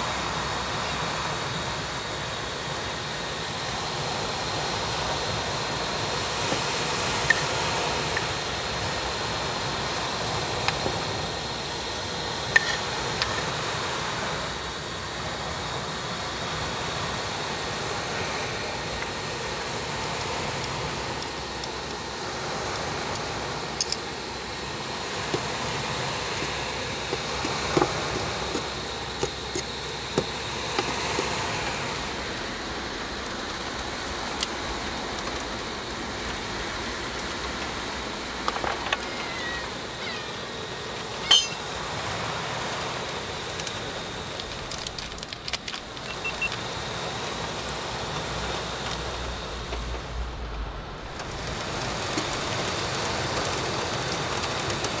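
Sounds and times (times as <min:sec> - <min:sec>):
rain hissing: 0:00.0 - 0:55.0
cooking utensils clicking: 0:12.5 - 0:13.5, 0:41.2 - 0:41.7.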